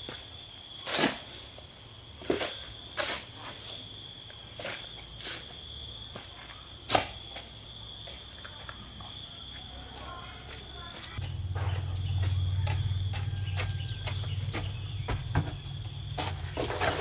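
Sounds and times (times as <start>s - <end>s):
insects droning: 0.0s - 17.0s
metal blade scraping dirt: 2.2s - 3.7s.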